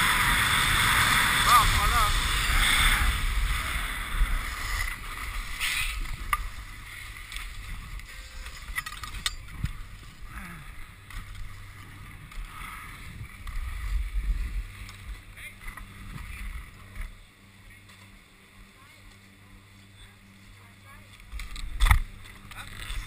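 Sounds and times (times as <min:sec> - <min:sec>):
sliding over packed snow: 0:00.0 - 0:08.7.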